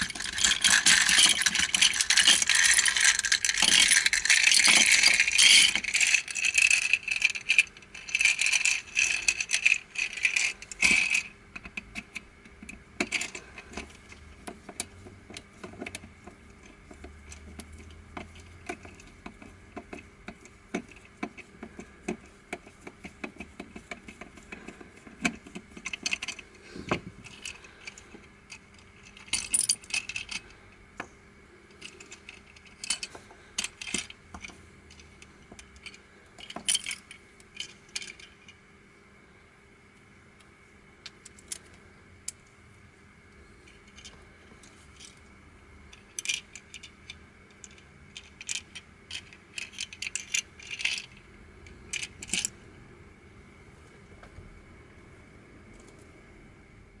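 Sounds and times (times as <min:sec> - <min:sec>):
plastic puzzle pieces clattering: 0:00.0 - 0:14.2, 0:28.7 - 0:30.5, 0:31.8 - 0:35.2, 0:45.9 - 0:51.2.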